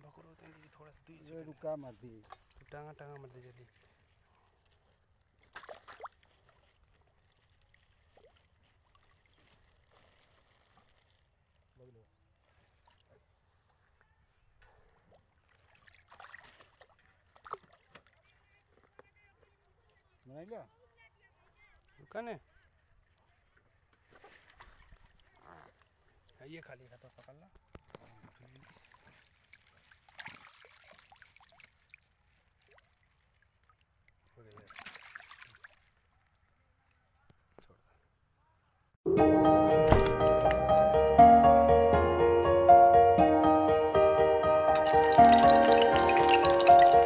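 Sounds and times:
water sloshing and splashing: 0:00.1 - 0:13.2, 0:14.8 - 0:19.6, 0:22.7 - 0:26.4, 0:27.9 - 0:36.1, 0:44.7 - 0:47.0.

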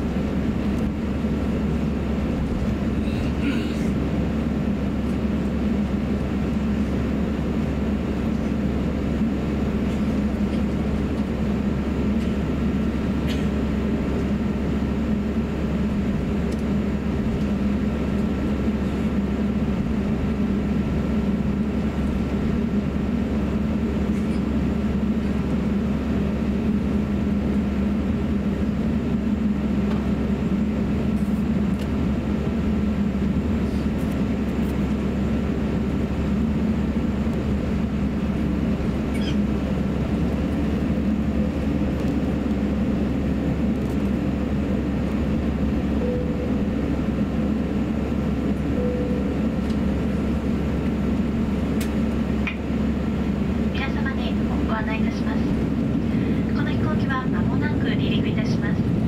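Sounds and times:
aircraft engines idling hum: 0:00.0 - 0:59.0
faint steady high tone: 0:46.0 - 0:46.7, 0:48.7 - 0:49.6.

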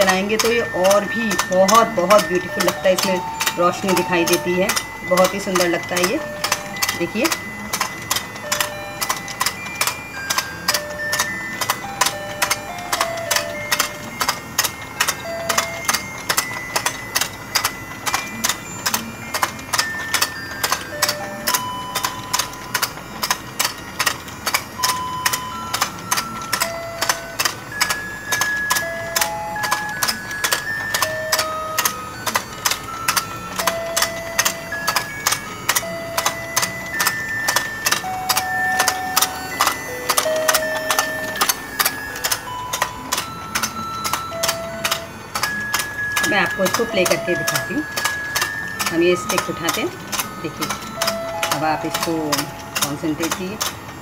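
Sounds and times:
toy beeping tune: 0:00.0 - 0:54.0
toy mechanism clicking: 0:00.0 - 0:54.0.

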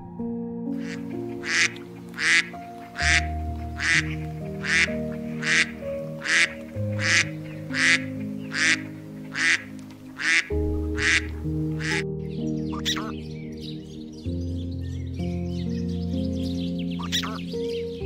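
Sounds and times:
soft background music: 0:00.0 - 0:18.0
bird calling: 0:00.8 - 0:13.5, 0:16.5 - 0:17.9.

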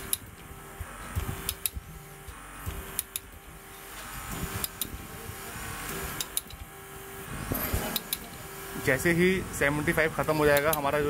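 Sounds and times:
ratchet clicks: 0:00.0 - 0:05.1, 0:05.8 - 0:06.8, 0:07.6 - 0:08.4, 0:10.2 - 0:11.0
hydraulic pump humming: 0:00.0 - 0:11.0.

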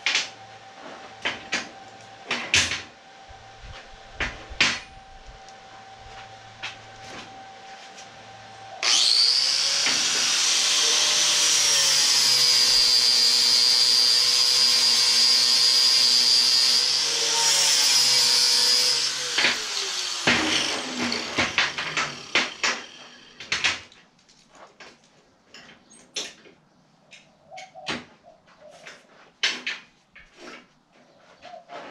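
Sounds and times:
angle grinder grinding steel: 0:05.0 - 0:23.4.

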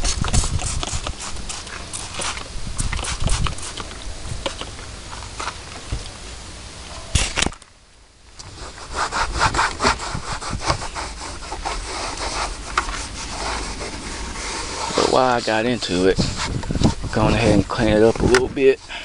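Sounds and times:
cloth scrubbing steering wheel: 0:08.5 - 0:19.0.

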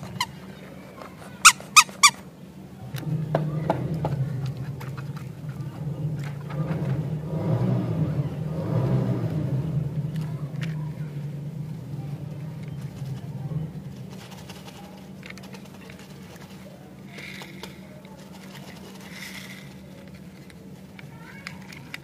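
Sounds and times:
plastic toy clicking and rustling: 0:10.1 - 0:11.0, 0:14.0 - 0:22.0.

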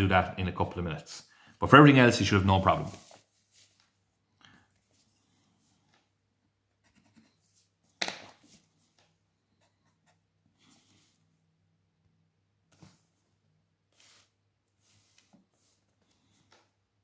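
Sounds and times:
pencil ruling lines: 0:02.7 - 0:04.0, 0:06.7 - 0:11.4, 0:12.7 - 0:16.8.

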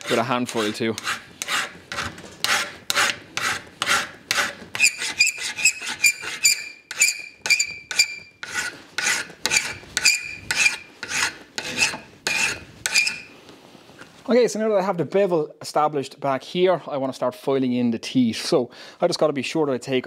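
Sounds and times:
hand file rasping on steel: 0:00.0 - 0:13.3.

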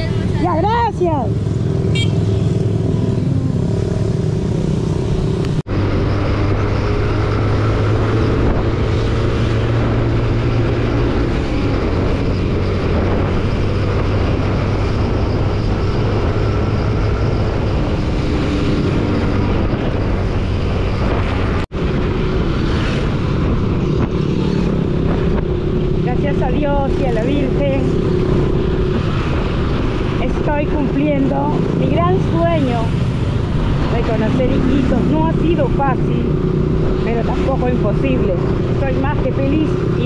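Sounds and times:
motorcycle engine running: 0:00.0 - 0:05.6
wind noise on microphone: 0:04.9 - 0:40.0.

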